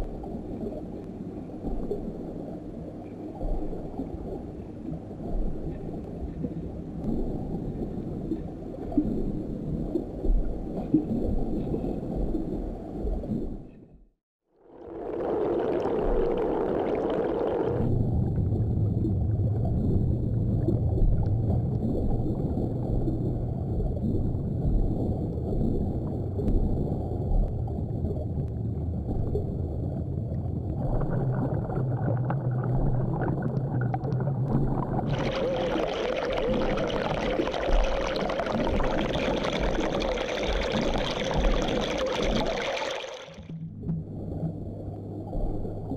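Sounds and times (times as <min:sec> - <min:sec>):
muffled underwater rumble: 0:00.0 - 0:45.9
low steady hum: 0:14.7 - 0:45.9.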